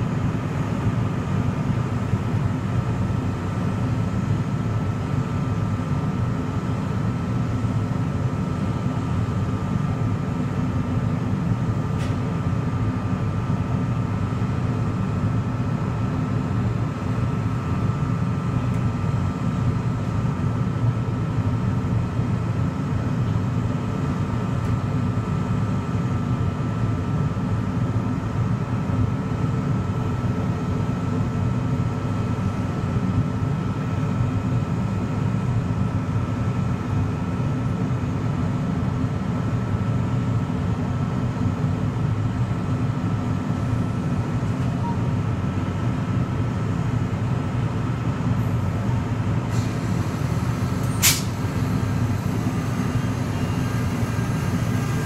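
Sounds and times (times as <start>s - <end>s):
train low steady hum: 0.0s - 55.0s
thin steady whine: 48.4s - 55.0s.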